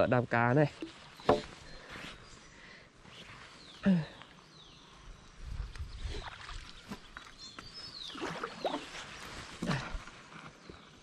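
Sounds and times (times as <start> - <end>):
water sloshing around pole: 6.0 - 9.9.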